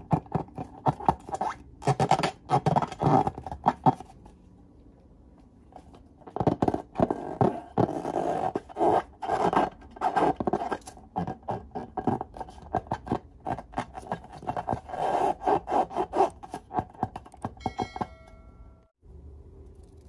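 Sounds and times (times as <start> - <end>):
balloon squeaking and rubbing: 0.1 - 4.1, 6.4 - 17.1.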